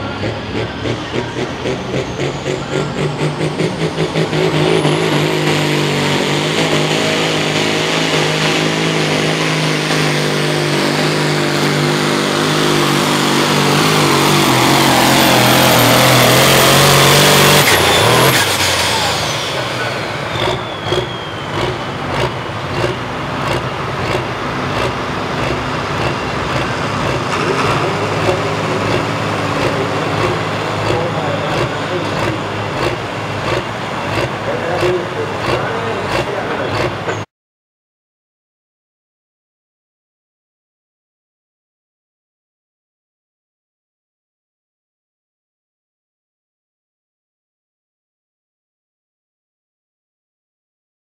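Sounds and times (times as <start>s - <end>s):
diesel tractor engine at full throttle: 0.0s - 37.3s
high turbo whistle: 14.0s - 22.4s.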